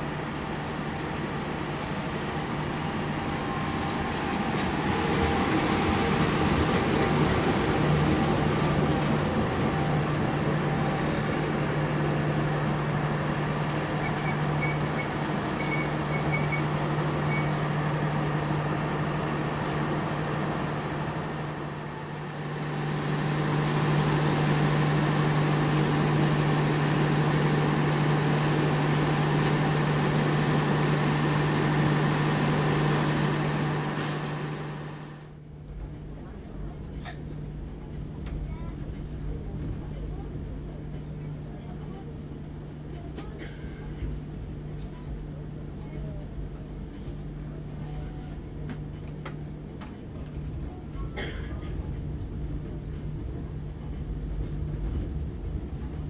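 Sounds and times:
train coaches rolling past: 0.0s - 35.4s
diesel locomotive droning: 0.0s - 56.0s.

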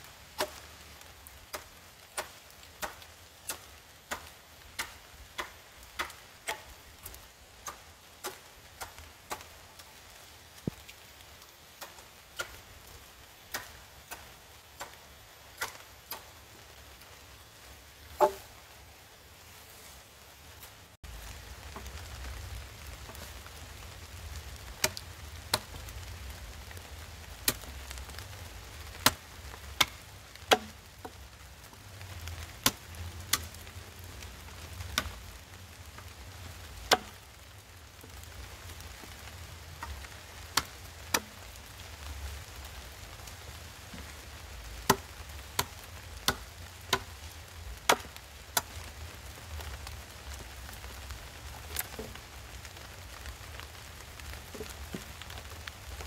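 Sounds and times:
machete chopping wood: 0.4s - 0.6s, 18.2s - 18.5s, 30.5s - 30.7s, 36.9s - 37.1s, 47.9s - 48.1s.

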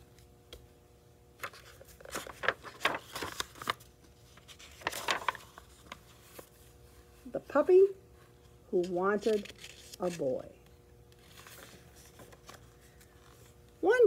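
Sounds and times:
book pages turning: 1.4s - 7.0s, 8.4s - 13.8s.

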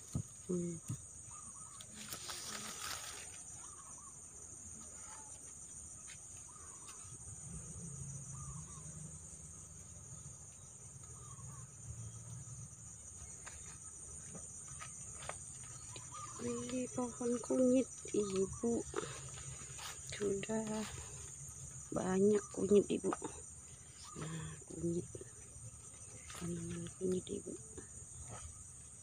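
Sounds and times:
insects droning: 0.0s - 29.0s
leaves rustling: 1.4s - 4.1s, 13.2s - 22.0s, 25.7s - 27.4s
faint bird calls: 6.4s - 7.2s, 11.0s - 12.0s, 15.6s - 28.6s.

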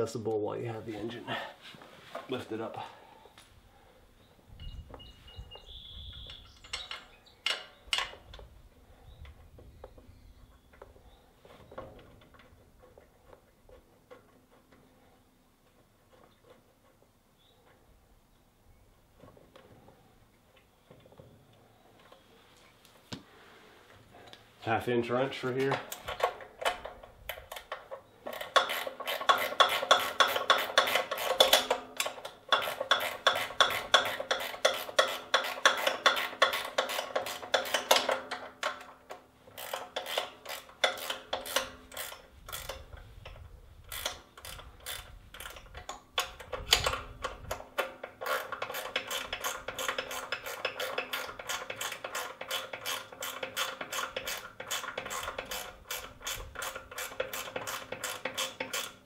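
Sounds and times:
ratchet wrench clicking: 27.3s - 38.8s, 39.6s - 59.0s.

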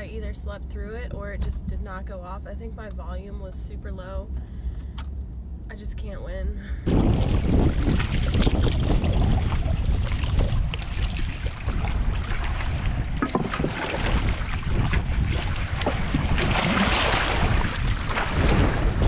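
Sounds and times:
wind buffeting microphone: 6.8s - 19.0s
water washing against rocks: 6.9s - 19.0s.

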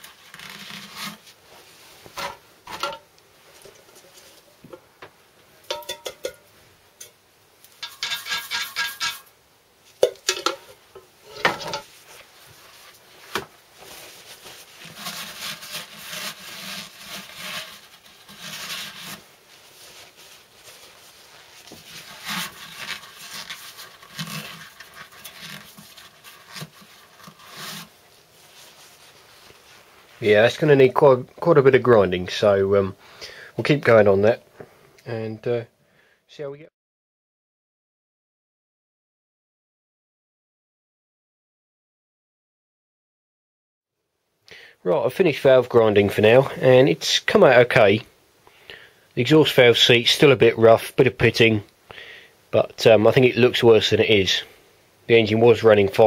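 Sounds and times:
light metal clinks and knocks: 5.7s - 9.3s
rag rubbing and wiping: 11.3s - 30.2s.

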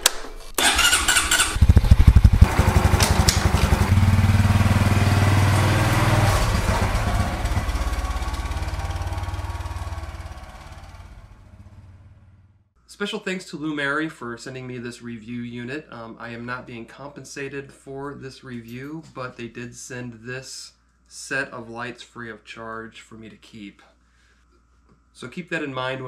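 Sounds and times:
motorcycle starter whirring: 0.6s - 11.8s
motorcycle engine running: 0.6s - 12.6s.

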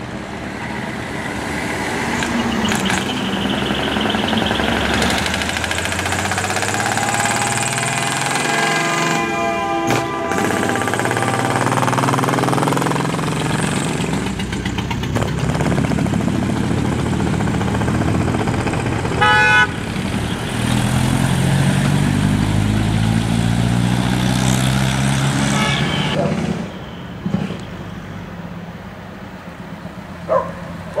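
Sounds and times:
diesel trucks driving past: 0.0s - 31.0s
truck horn blast: 6.4s - 12.9s, 19.1s - 19.9s, 25.0s - 27.9s.

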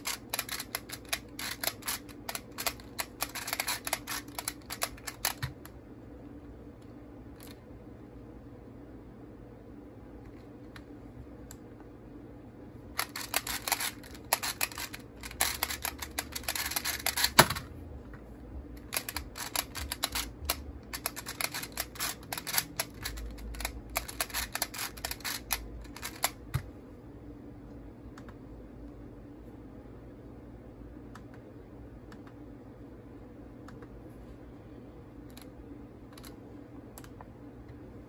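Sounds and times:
plastic puzzle clicking: 0.0s - 5.6s, 13.0s - 17.6s, 18.8s - 26.4s.

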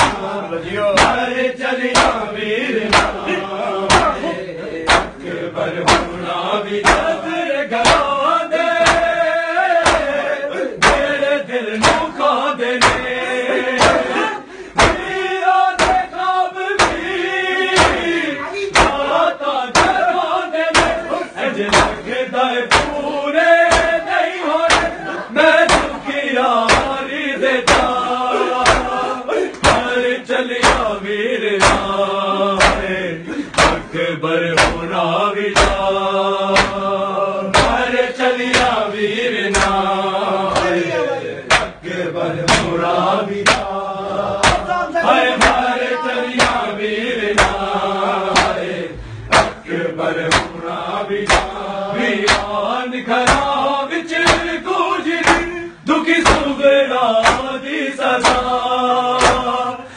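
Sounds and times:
hands slapping bare chests: 0.0s - 0.3s, 1.0s - 1.3s, 1.9s - 2.2s, 2.9s - 3.3s, 3.9s - 4.2s, 4.8s - 5.2s, 5.8s - 6.2s, 6.8s - 7.2s, 7.8s - 8.2s, 8.8s - 9.2s, 9.8s - 10.2s, 10.8s - 12.1s, 12.8s - 13.2s, 13.8s - 14.1s, 14.8s - 15.2s, 15.8s - 16.1s, 16.8s - 19.1s, 19.7s - 20.1s, 20.7s - 21.0s, 21.7s - 22.1s, 22.7s - 23.0s, 23.6s - 25.0s, 25.6s - 26.0s, 26.6s - 27.0s, 27.6s - 30.0s, 30.6s - 31.0s, 31.6s - 32.0s, 32.6s - 33.9s, 34.6s - 34.9s, 35.5s - 35.9s, 36.5s - 36.9s, 37.5s - 38.8s, 39.5s - 39.9s, 40.5s - 40.8s, 41.5s - 41.8s, 42.4s - 43.8s, 44.4s - 47.7s, 48.3s - 48.7s, 49.3s - 49.6s, 50.2s - 50.6s, 51.2s - 51.6s, 52.2s - 52.6s, 53.2s - 53.6s, 54.2s - 54.6s, 55.2s - 55.5s, 56.2s - 56.5s, 57.2s - 57.6s, 58.2s - 58.5s, 59.2s - 59.6s
men chanting together: 0.0s - 59.9s.

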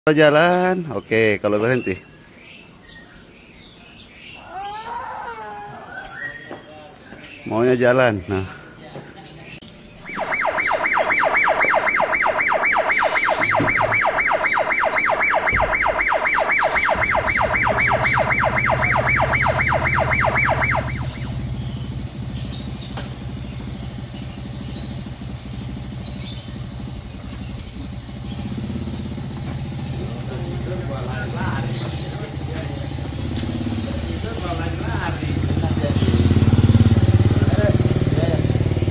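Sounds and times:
steady low hum: 9.9s - 23.9s
electronic siren warble: 10.0s - 21.9s.

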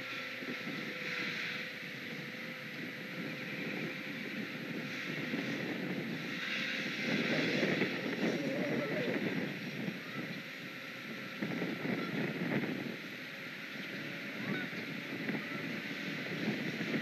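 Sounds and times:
wind gusts on microphone: 0.0s - 17.0s.

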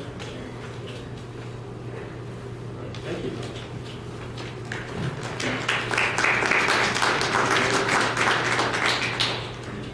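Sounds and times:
audience applauding: 4.6s - 9.7s.

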